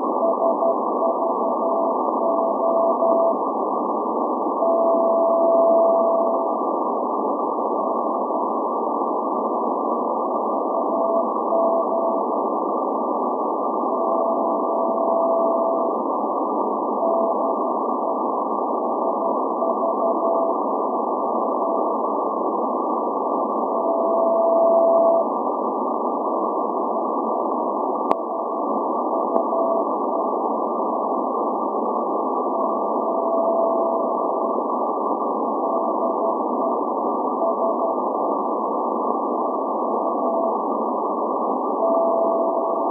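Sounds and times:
shortwave band noise hiss: 0.0 - 42.9
morse code tone: 0.2 - 3.4, 4.6 - 6.5, 10.8 - 12.3, 14.0 - 15.9, 18.8 - 20.6, 23.8 - 25.2, 32.6 - 34.2, 41.8 - 42.9.

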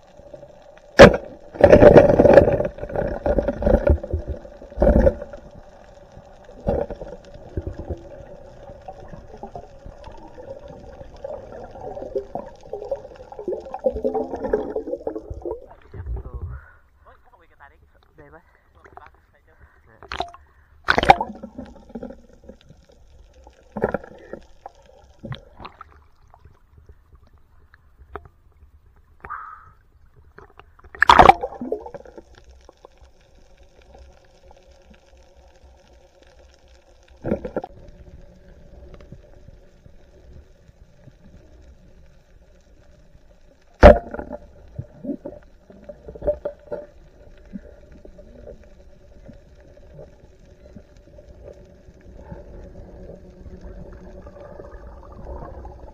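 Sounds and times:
faint steady hum: 0.0 - 55.9
underwater knocks and bumps: 1.0 - 16.6, 20.0 - 22.7, 23.7 - 24.4, 37.2 - 37.7, 43.8 - 48.6
muffled underwater gurgling: 43.8 - 55.9.

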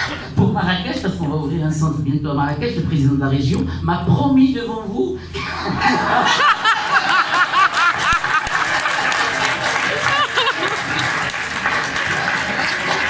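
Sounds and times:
audience laughing: 5.4 - 13.0
crowd hubbub: 5.4 - 13.0
person laughing: 9.9 - 10.9.

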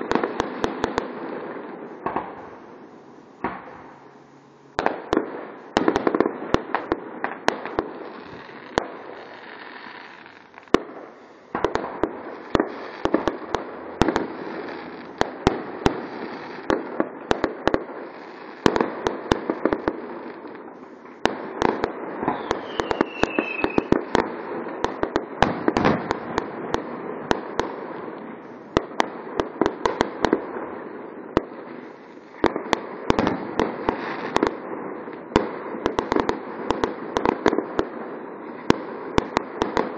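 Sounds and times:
fireworks bangs: 0.0 - 39.9
fireworks crackling: 0.0 - 39.9
falling firework whistle: 22.2 - 24.0.

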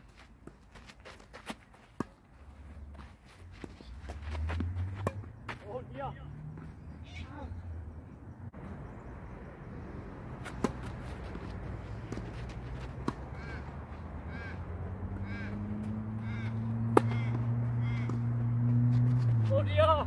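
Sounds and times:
tennis ball struck by racquet: 4.6 - 5.3, 10.4 - 13.6, 16.8 - 18.5
bird calling: 13.3 - 18.3.

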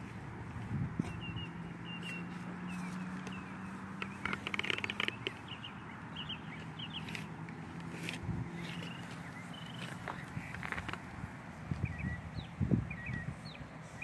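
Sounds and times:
small bird chirping: 1.0 - 7.3, 8.5 - 10.9, 11.7 - 14.0.

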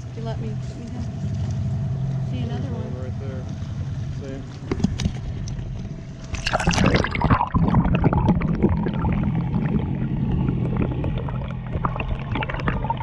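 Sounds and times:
underwater bubbling and gurgling: 3.6 - 13.0.

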